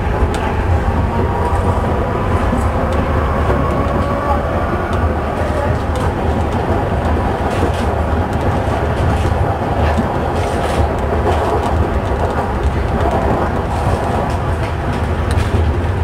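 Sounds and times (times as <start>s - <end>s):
subway train rumbling: 0.0s - 16.0s
wheels clicking over rail joints: 0.0s - 16.0s.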